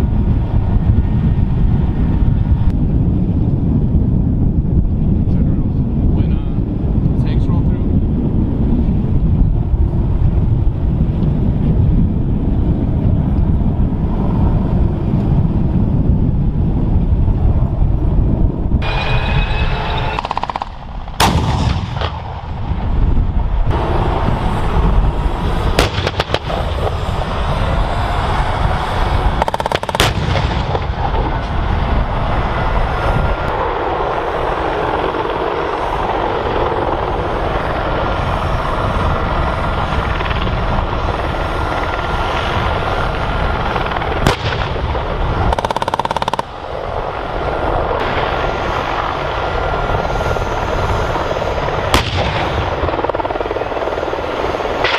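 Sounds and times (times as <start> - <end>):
helicopters rumbling overhead: 0.0 - 54.9
gunshots: 20.1 - 22.5, 25.8 - 26.8, 29.4 - 31.1, 44.2 - 44.9, 52.0 - 52.8.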